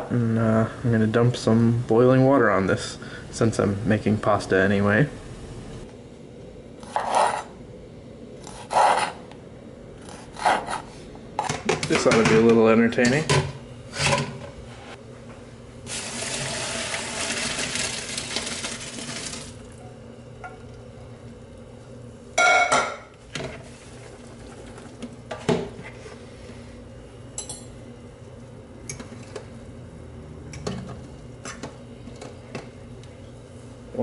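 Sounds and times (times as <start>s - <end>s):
water pouring through colander: 15.9s - 19.7s
cookware knocking and clinking: 22.4s - 23.1s.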